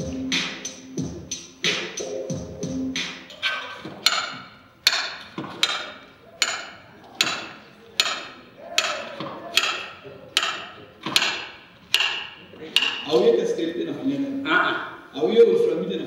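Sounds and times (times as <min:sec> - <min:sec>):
sharp ringing knocks: 0:04.0 - 0:13.1.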